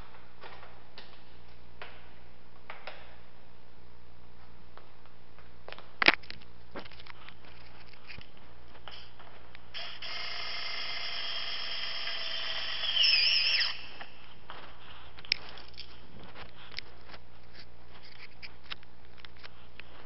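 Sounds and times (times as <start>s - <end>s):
cordless screwdriver whining: 9.8s - 14.2s.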